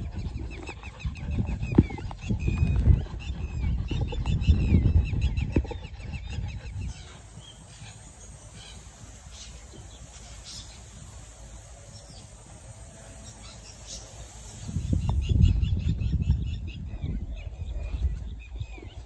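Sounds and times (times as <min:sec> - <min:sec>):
bird chirps: 0:03.3 - 0:17.4
insects: 0:06.8 - 0:15.4.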